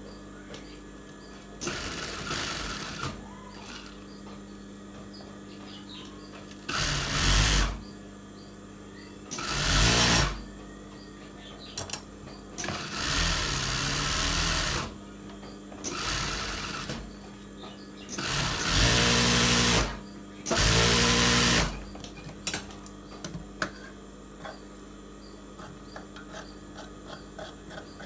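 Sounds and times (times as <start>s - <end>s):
sewing machine stitching: 1.6s - 3.9s, 6.7s - 7.8s, 9.3s - 10.4s, 12.6s - 14.9s, 15.8s - 17.0s, 18.2s - 21.8s.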